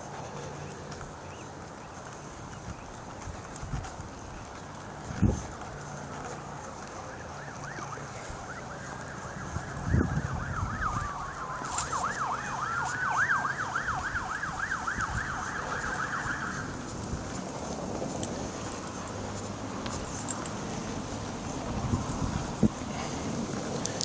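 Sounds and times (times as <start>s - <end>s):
police siren wailing: 6.8s - 17.6s
police siren yelping: 7.0s - 16.8s.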